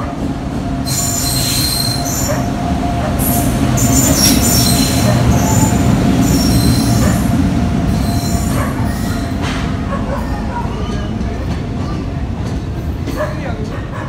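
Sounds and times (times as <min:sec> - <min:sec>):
locomotive hum: 0:00.0 - 0:14.0
train rolling rumble: 0:00.0 - 0:14.0
wheel squeal: 0:00.9 - 0:02.4, 0:03.8 - 0:07.2.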